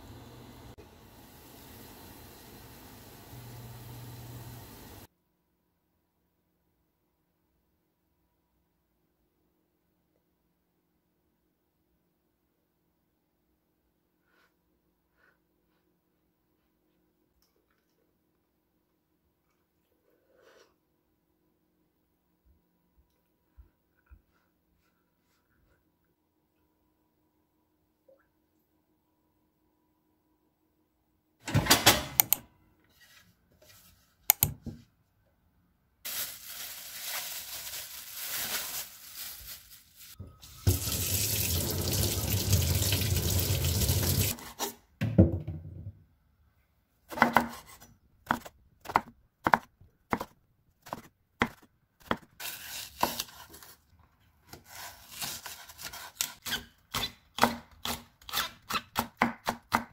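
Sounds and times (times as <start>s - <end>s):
kitchen tap running: 40.2s - 44.4s
knife chopping on wooden board: 48.3s - 50.3s.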